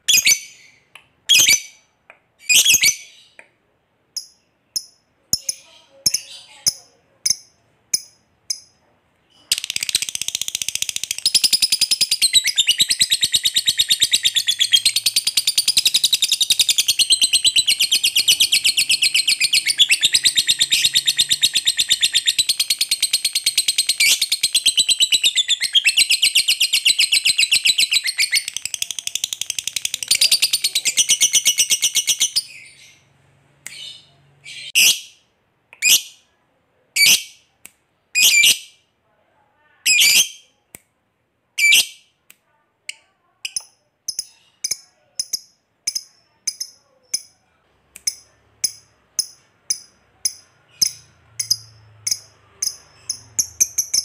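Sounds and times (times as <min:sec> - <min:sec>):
lovebird chattering trill: 0:09.4 - 0:33.0.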